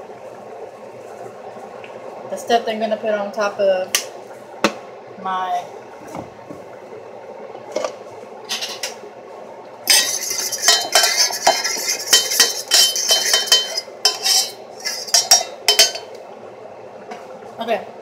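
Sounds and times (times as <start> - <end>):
metal utensil stirring in a bowl: 9.9 - 16.1.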